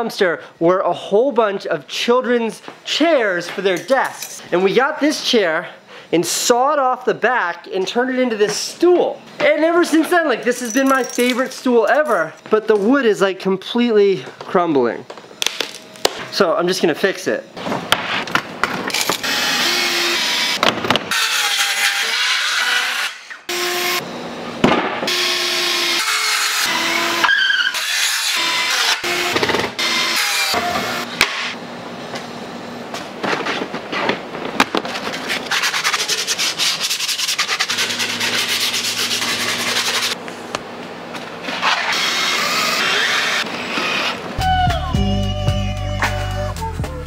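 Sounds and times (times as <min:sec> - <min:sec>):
cordless drill driving screws: 0:19.0 - 0:23.4, 0:41.7 - 0:44.2.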